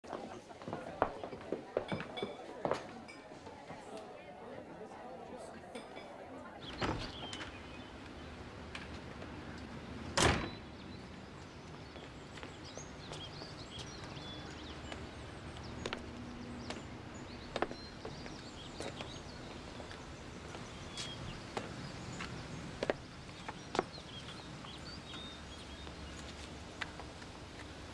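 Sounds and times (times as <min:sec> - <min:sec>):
footsteps on stone steps: 0:00.1 - 0:03.0, 0:11.7 - 0:27.9
front door thudding shut: 0:06.6 - 0:07.6, 0:10.1 - 0:10.7
bird chirps: 0:06.6 - 0:08.3, 0:10.5 - 0:26.4.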